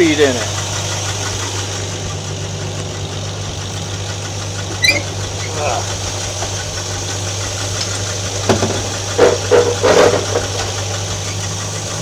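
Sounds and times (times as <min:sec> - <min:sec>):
engine idling: 0:00.0 - 0:12.0
short clunks: 0:04.7 - 0:05.6, 0:08.4 - 0:11.4.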